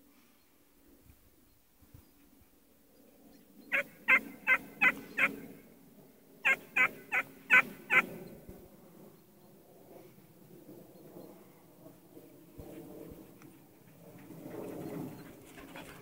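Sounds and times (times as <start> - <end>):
puppy yapping: 3.7 - 5.3.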